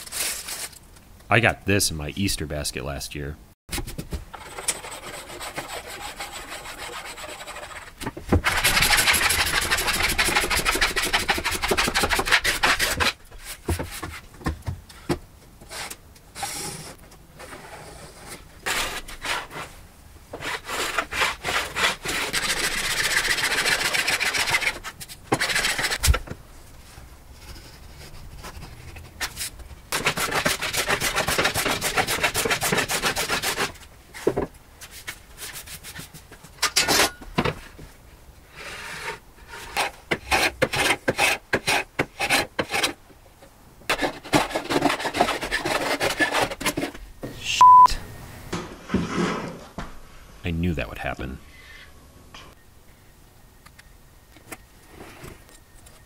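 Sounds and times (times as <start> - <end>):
hand plane shaving wood: 4.4 - 7.8, 30.0 - 33.8, 43.9 - 46.9.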